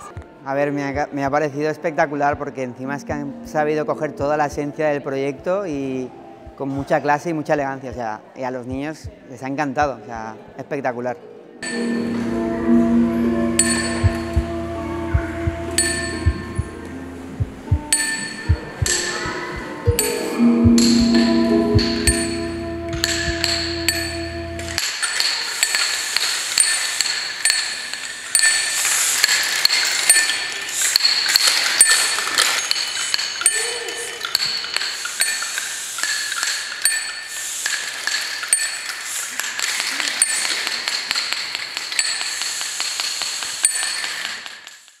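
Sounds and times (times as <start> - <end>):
metallic chimes ringing: 11.6 - 44.8.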